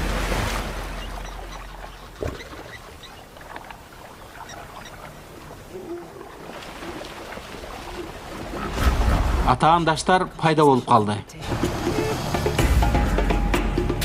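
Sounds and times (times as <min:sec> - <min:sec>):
animals splashing through water: 0:00.0 - 0:09.6.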